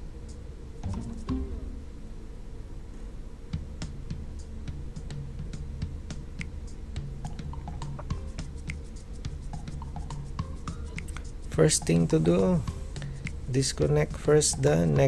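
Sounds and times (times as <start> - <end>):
low drone: 0.8 - 2.4.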